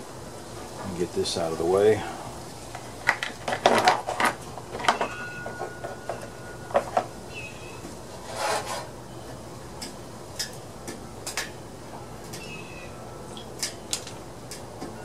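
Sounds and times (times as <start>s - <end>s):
rubbing scrape: 8.1s - 8.9s
tools clicking and tapping: 9.8s - 11.6s.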